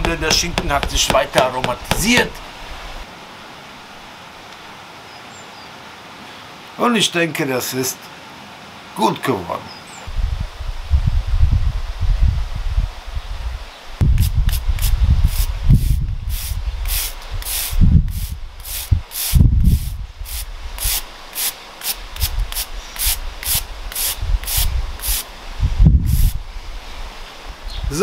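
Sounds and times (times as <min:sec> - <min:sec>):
stiff brush scrubbing: 0:00.0 - 0:02.4, 0:14.2 - 0:25.2.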